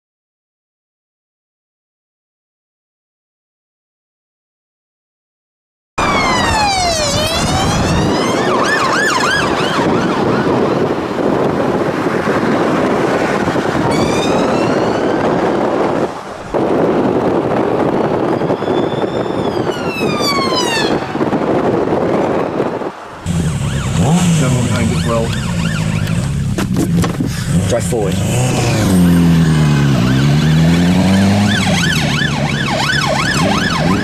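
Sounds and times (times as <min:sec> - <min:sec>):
emergency vehicle sirens: 0:06.0 - 0:26.6, 0:29.3 - 0:34.0
road traffic noise: 0:06.0 - 0:34.0.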